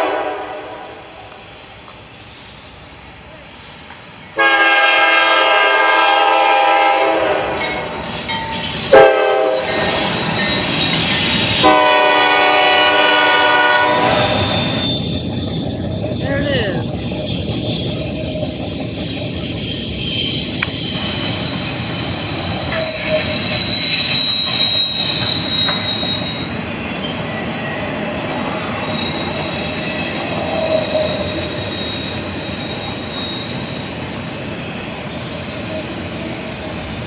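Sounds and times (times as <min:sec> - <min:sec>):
train wheels rumbling on rail: 0:00.0 - 0:37.0
high-pitched wheel squeal: 0:07.2 - 0:35.9.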